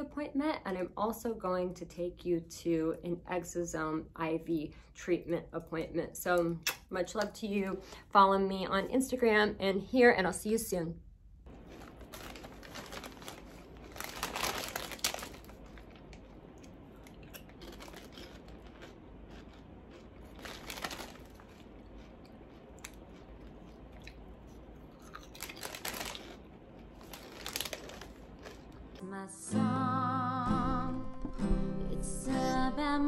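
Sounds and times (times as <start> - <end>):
plastic bags rustling: 11.5 - 22.1, 25.0 - 28.8.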